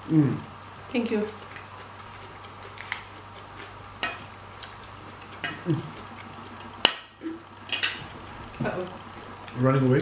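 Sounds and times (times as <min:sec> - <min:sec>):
forks clinking on ceramic plates: 0:04.0 - 0:04.3, 0:05.4 - 0:05.7, 0:07.7 - 0:08.0.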